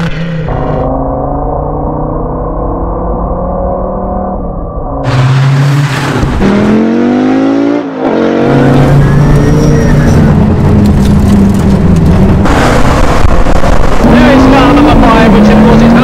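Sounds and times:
rally car engine accelerating: 0:00.0 - 0:16.0.

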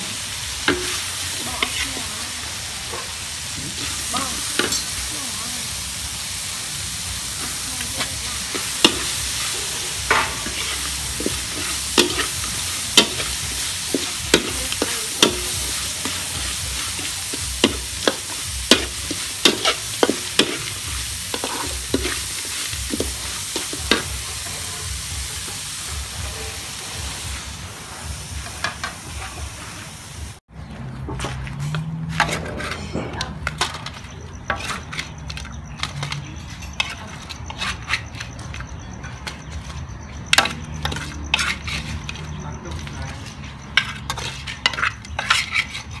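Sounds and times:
food sizzling in oil: 0:00.0 - 0:30.5, 0:33.4 - 0:46.0
spatula knocking and scraping pan: 0:00.6 - 0:01.8, 0:07.4 - 0:26.9, 0:31.0 - 0:46.0.

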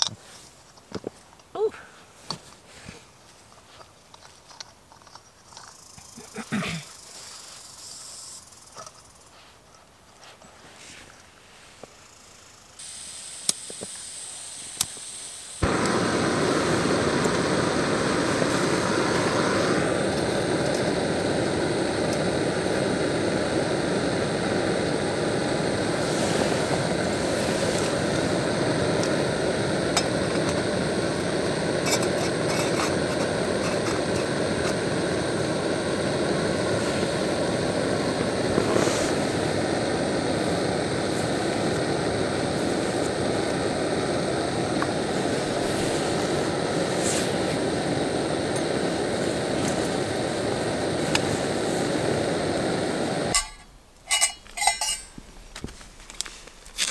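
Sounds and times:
faint gas hiss: 0:00.0 - 0:03.9, 0:05.8 - 0:56.9
stove burner roaring: 0:12.8 - 0:55.2
stove igniter clicks: 0:13.4 - 0:14.0, 0:14.7 - 0:26.0, 0:27.7 - 0:38.8, 0:47.6 - 0:55.1.

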